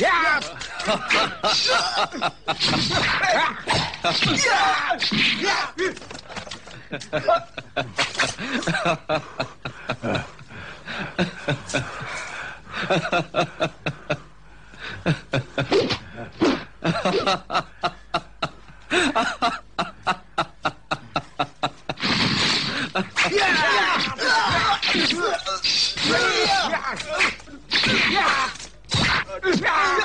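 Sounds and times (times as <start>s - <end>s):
man laughing: 0.4s - 3.6s, 6.7s - 12.0s, 16.8s - 22.0s.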